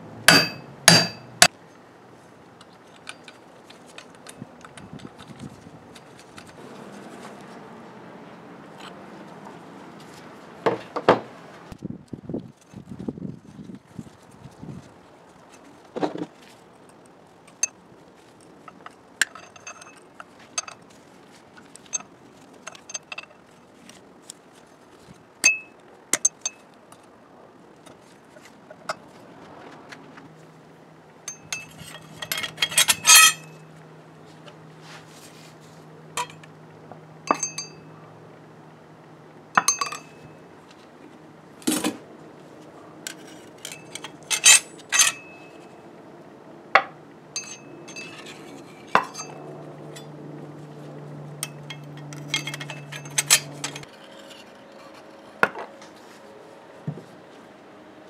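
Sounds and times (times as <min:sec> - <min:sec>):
metal tools clinking on gears: 0:18.7 - 0:20.8, 0:31.3 - 0:33.6, 0:37.3 - 0:37.9, 0:39.6 - 0:40.3, 0:43.1 - 0:45.6, 0:47.4 - 0:50.1, 0:51.4 - 0:53.9.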